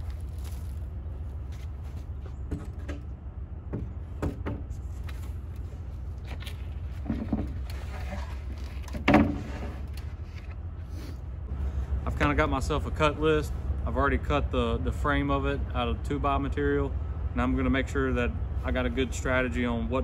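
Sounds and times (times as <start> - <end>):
steady low hum: 0.0 - 20.0
lumber and tools clattering: 6.2 - 10.6.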